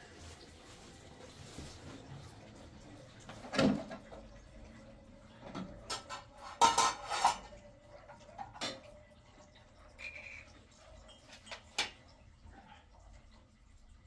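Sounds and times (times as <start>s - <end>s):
kitchenware clanking: 5.5s - 7.6s.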